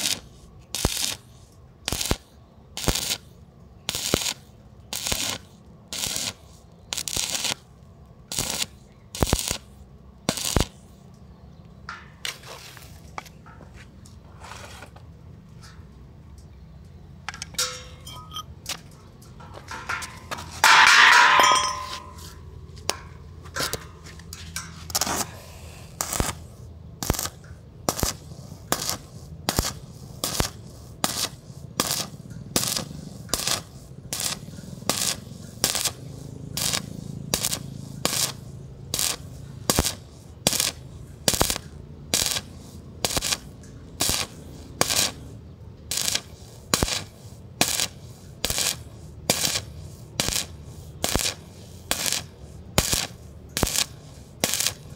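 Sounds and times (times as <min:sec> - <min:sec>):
metal scraping strokes: 0:11.9 - 0:15.9, 0:17.3 - 0:26.6
low steady hum: 0:15.0 - 0:27.9.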